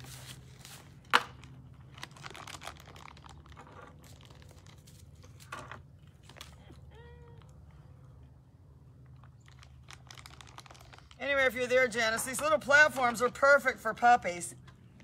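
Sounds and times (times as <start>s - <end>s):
rustling and crinkling handling: 0.0s - 7.7s, 9.0s - 13.0s.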